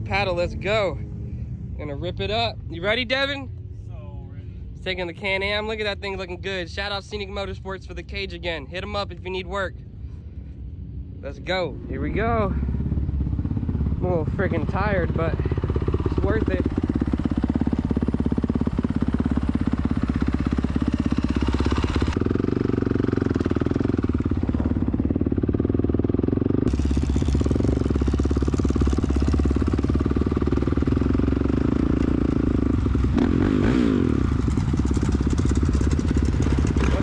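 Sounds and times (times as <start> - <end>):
dirt bike engine running: 10.6 - 37.0.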